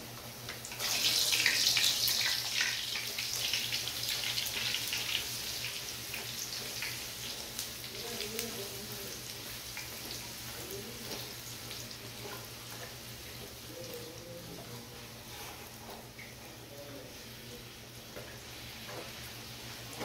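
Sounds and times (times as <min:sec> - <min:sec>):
hot oil sizzling: 0:00.0 - 0:20.0.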